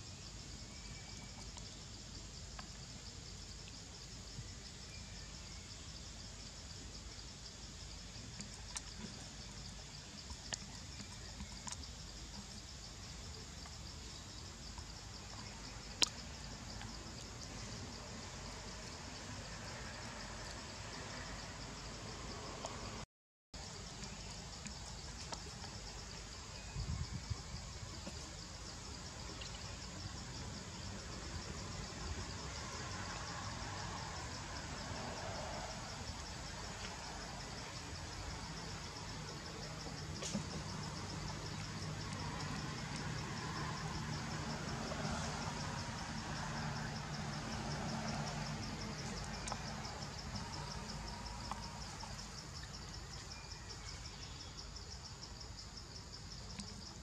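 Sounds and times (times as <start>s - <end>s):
insect chorus trilling: 23.6s - 57.0s.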